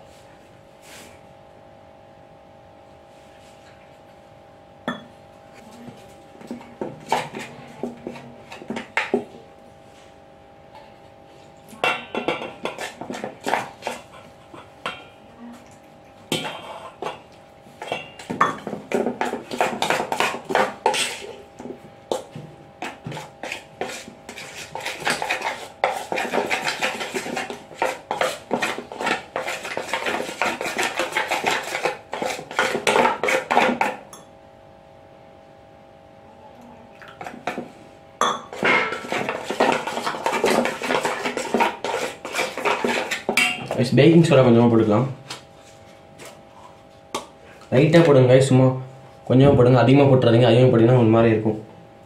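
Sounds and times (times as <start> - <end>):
spoon scraping metal bowl: 17.8 - 21.4, 22.8 - 34.0, 38.4 - 43.8.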